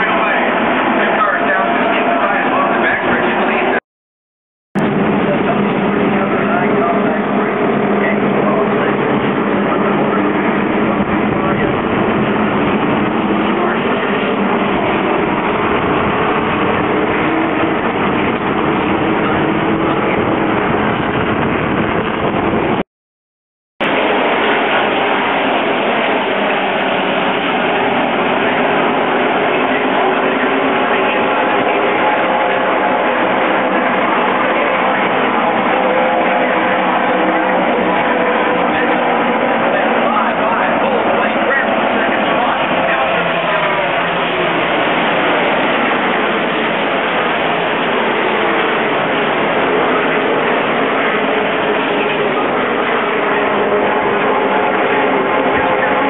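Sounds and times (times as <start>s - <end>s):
race truck engines roaring: 0.0s - 3.8s, 4.8s - 22.8s, 23.8s - 56.0s.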